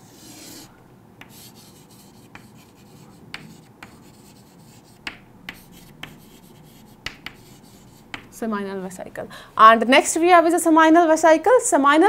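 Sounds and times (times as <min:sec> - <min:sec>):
chalk scratching: 0:00.0 - 0:08.4
chalk tapping on chalkboard: 0:00.2 - 0:08.4.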